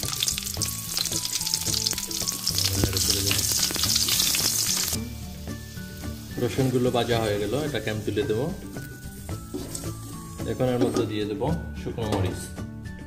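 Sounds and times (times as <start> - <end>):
garlic sizzling in hot oil: 0.0 - 11.4
wooden spatula stirring: 8.6 - 11.0.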